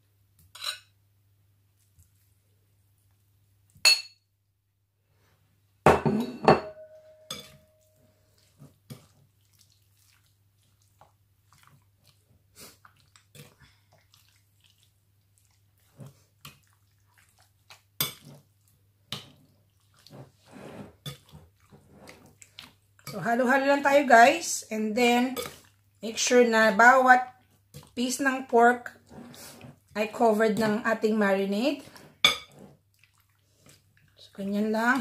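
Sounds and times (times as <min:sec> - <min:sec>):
spoon clinking on plate and bowl: 0:03.9 - 0:04.2, 0:05.9 - 0:07.9, 0:32.2 - 0:32.6.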